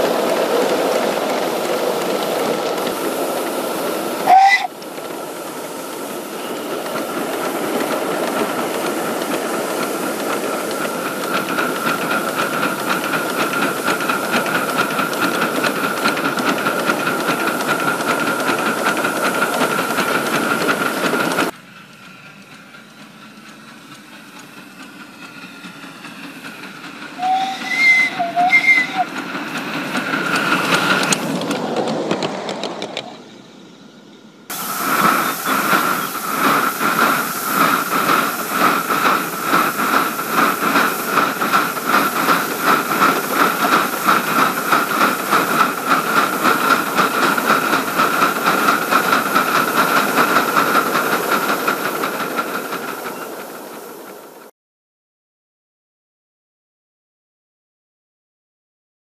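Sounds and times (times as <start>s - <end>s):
steam locomotive hissing: 0.0s - 54.5s
steam whistle toots: 4.2s - 4.8s, 27.2s - 29.1s.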